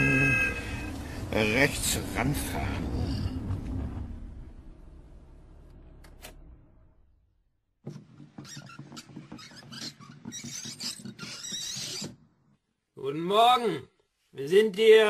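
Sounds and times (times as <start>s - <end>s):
car engine rumbling: 0.0s - 7.6s.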